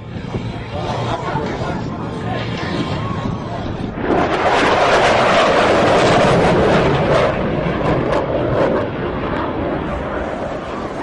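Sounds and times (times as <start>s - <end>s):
fighter jet roar: 0.0s - 11.0s.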